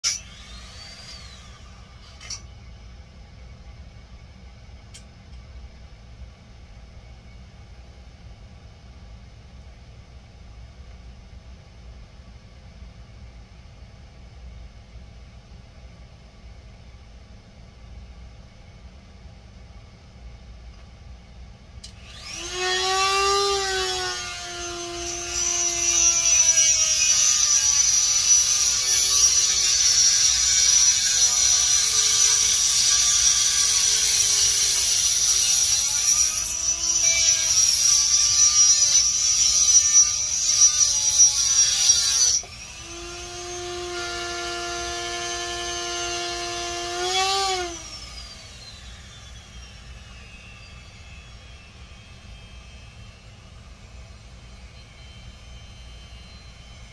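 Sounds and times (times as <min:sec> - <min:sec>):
rotary tool spinning down: 0:00.1 - 0:02.4, 0:21.9 - 0:56.9
rotary tool cutting coral: 0:22.1 - 0:49.2.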